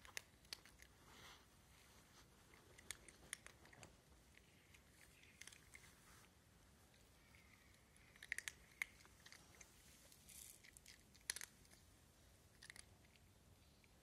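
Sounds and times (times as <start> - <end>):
cat crunching dry kibble: 0.0 - 1.0, 2.5 - 5.9, 7.3 - 11.8, 12.5 - 13.3.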